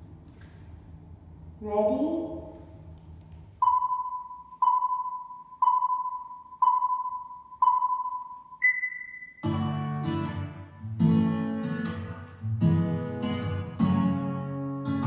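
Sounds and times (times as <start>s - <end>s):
higher longer timer beep: 3.6s - 9.5s
timer countdown beeps: 3.6s - 9.7s
plucked acoustic guitar music: 9.3s - 15.0s.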